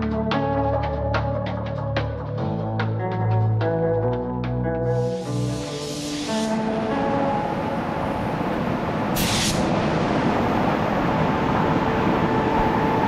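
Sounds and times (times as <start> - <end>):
air hiss burst: 5.0 - 6.7, 9.2 - 9.7
air blowers rushing: 5.0 - 13.0.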